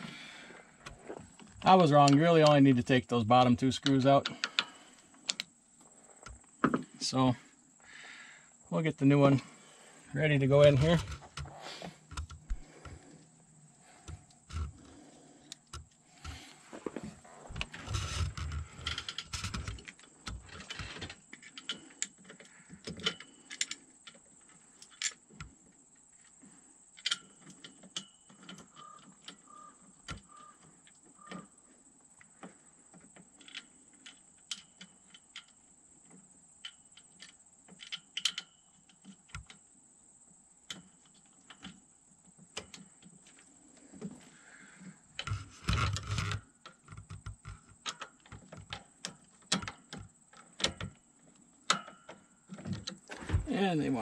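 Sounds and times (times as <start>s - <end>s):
clicks and taps of parts: 27.0s - 29.4s, 33.2s - 39.6s, 45.2s - 53.0s.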